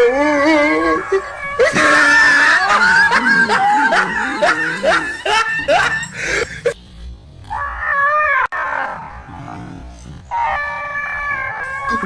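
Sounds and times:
dog yelping: 0.0 - 6.3.

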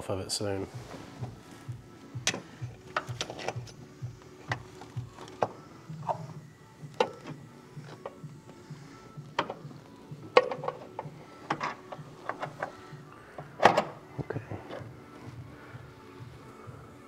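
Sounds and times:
background music with steady beat: 0.0 - 17.0
car parts clicking and knocking: 2.2 - 8.2, 9.2 - 15.0.

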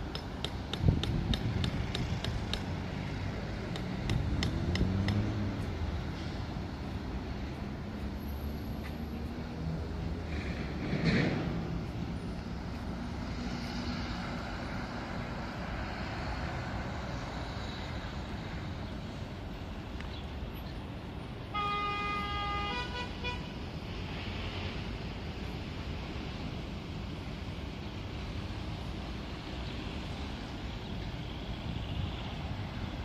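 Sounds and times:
distant city traffic hum: 0.0 - 33.0
vehicle horn honking: 21.5 - 23.5.

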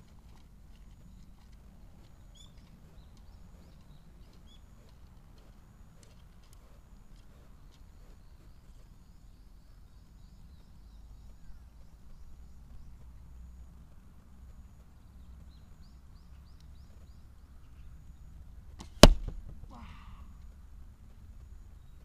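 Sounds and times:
arrow hitting target: 18.8 - 19.6.

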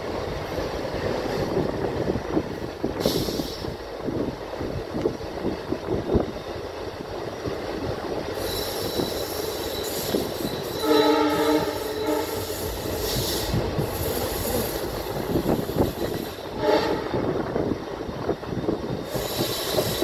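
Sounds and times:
train running on rails: 0.0 - 20.0
locomotive horn blast: 10.8 - 12.6, 16.6 - 17.3.

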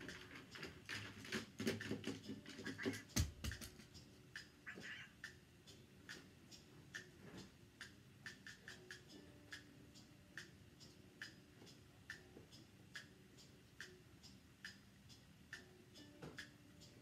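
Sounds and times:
faint regular ticking: 5.2 - 17.0.

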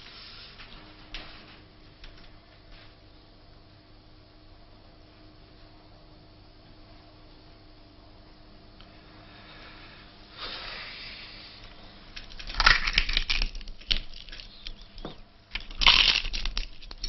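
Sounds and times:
pork crackling cracking and crunching: 12.2 - 17.0.

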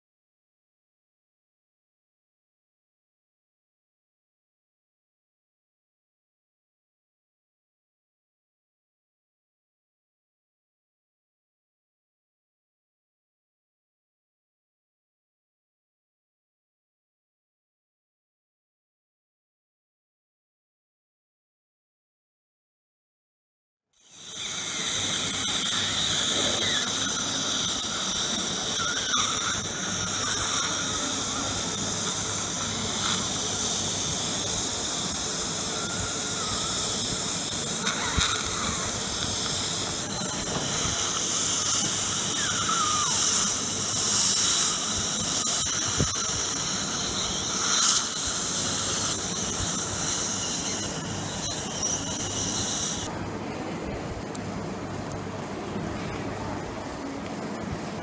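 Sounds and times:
suction tip hissing: 24.0 - 53.1.

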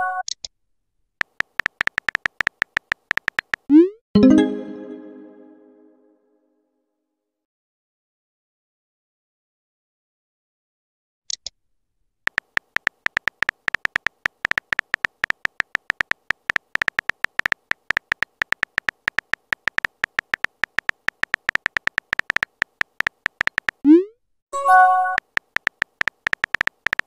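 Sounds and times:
keyboard tap clicks: 1.2 - 3.7, 12.3 - 23.9, 25.1 - 27.0.

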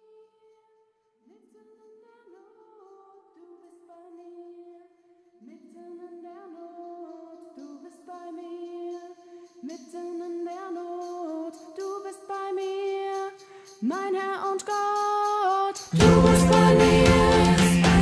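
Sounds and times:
wordless sung notes: 9.0 - 18.0.

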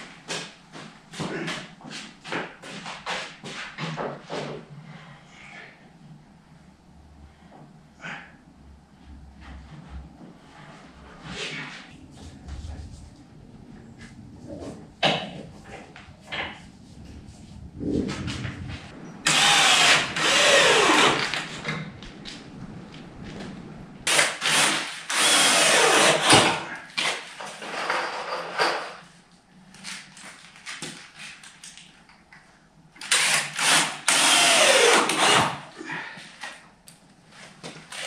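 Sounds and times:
power drill running: 19.2 - 21.6, 24.1 - 26.6, 33.0 - 35.6.

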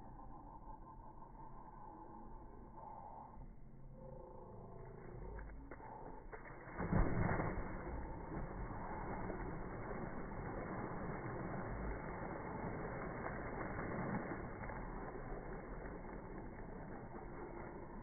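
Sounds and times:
muffled slowed pool water splashing: 0.0 - 18.0.

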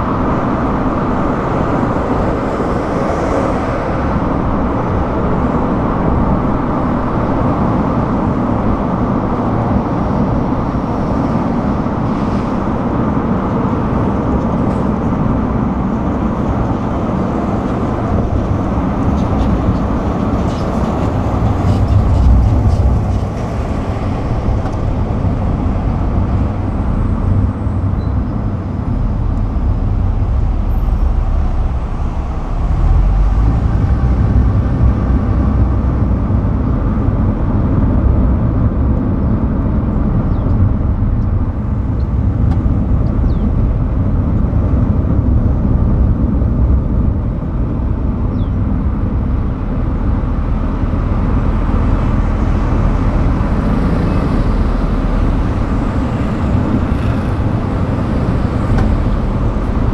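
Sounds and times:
tyre and road noise: 0.0 - 59.9
wind rush: 0.0 - 59.9
low rumble: 13.9 - 59.9.

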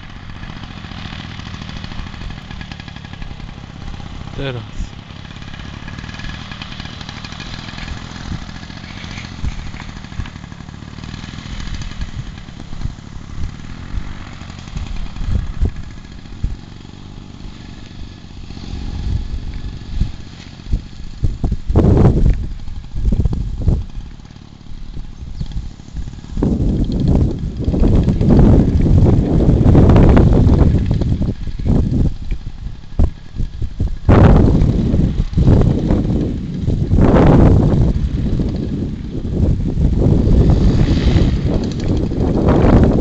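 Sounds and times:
distant paramotor engine: 0.0 - 43.0
wind buffeting microphone: 11.4 - 16.7, 18.6 - 24.1, 24.8 - 43.0.

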